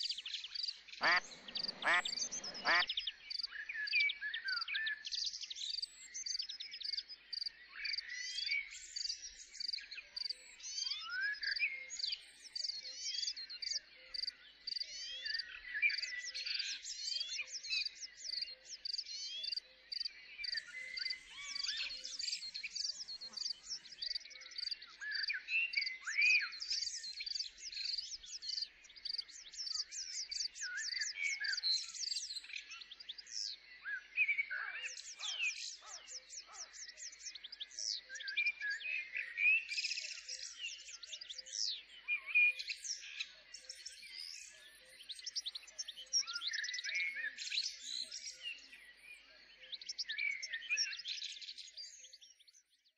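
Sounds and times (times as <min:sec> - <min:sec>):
small birds chirping and trilling: 0:00.0 - 0:52.9.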